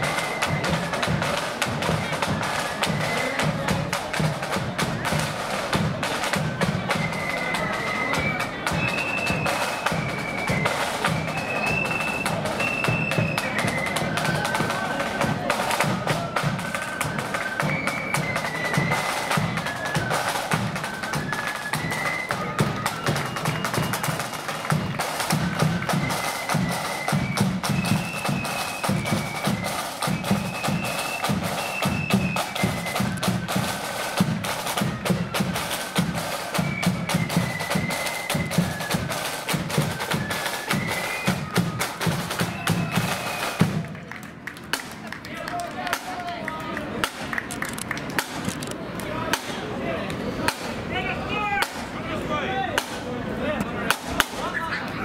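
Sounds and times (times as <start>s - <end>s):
high flute melody: 0.0s - 44.0s
snare drums rattling: 0.0s - 46.4s, 51.4s - 51.9s.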